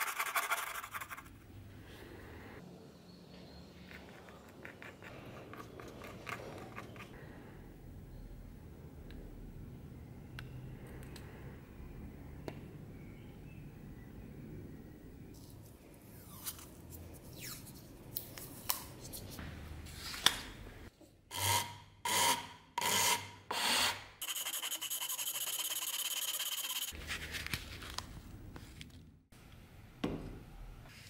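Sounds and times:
blade rubbing across paper: 24.2s - 27.0s.

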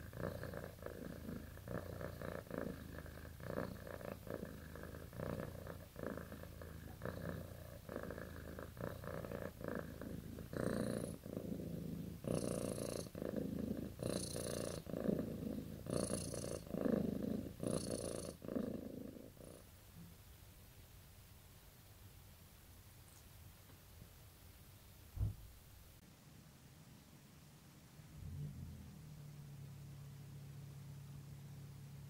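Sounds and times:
cat purring: 0.0s - 20.2s.

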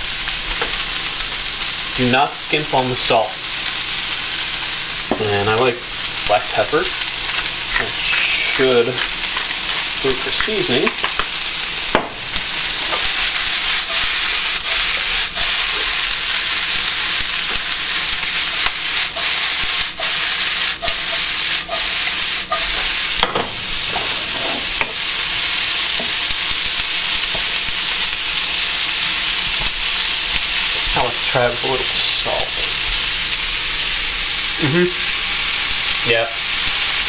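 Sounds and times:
vegetables sizzling in a skillet: 0.0s - 37.0s
spoon and pan knocking: 20.8s - 21.9s.

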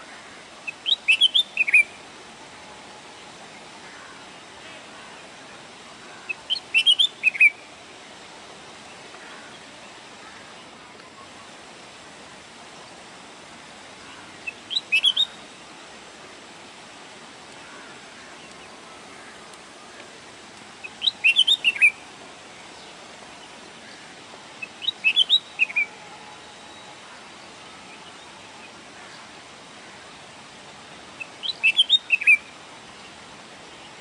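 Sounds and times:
steady background hiss: 0.0s - 34.0s
bulbul singing: 0.6s - 2.0s, 6.2s - 7.7s, 14.1s - 15.4s, 20.8s - 22.0s, 24.6s - 28.7s, 31.2s - 33.1s.

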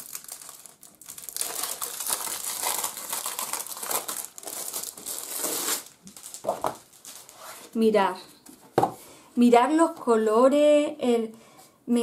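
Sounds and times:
cellophane wrapper crinkling: 0.0s - 7.7s.

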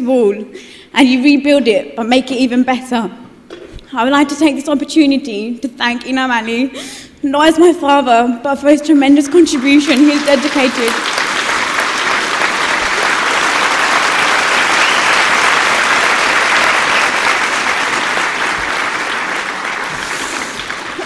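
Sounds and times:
audience applauding: 9.2s - 21.0s.

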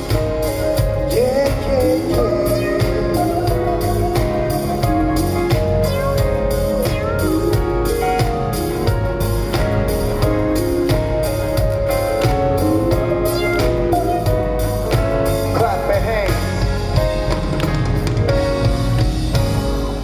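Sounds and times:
guitar melody: 0.0s - 20.0s
steady drum beat: 0.0s - 20.0s
person singing: 0.5s - 8.5s.

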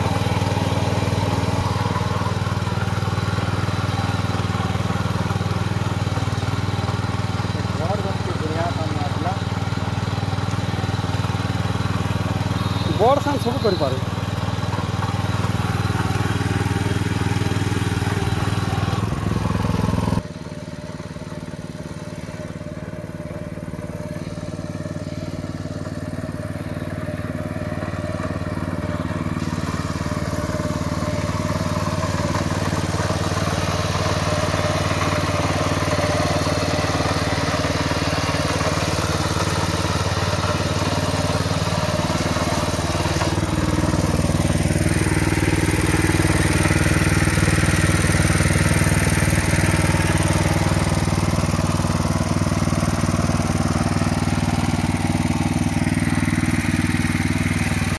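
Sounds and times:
power tiller engine running: 0.0s - 57.9s.

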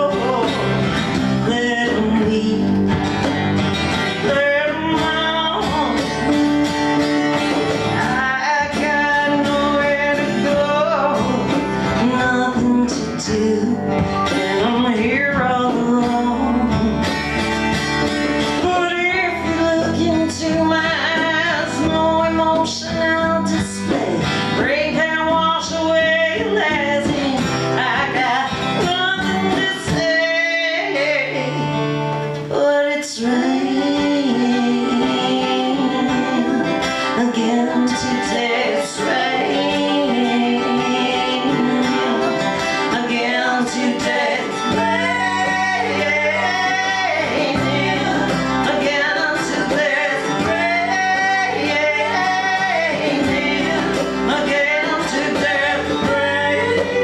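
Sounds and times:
person singing: 0.0s - 3.4s, 4.1s - 6.5s, 7.6s - 17.4s, 18.4s - 31.8s, 32.4s - 57.0s
strummed guitars: 0.0s - 57.0s.

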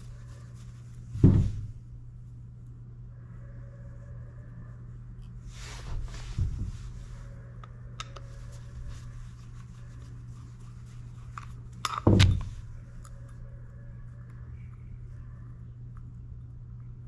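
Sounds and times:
steady low hum: 0.0s - 17.0s
short thump: 1.2s - 1.7s
screwdriver and metal parts clicking: 11.2s - 13.4s.

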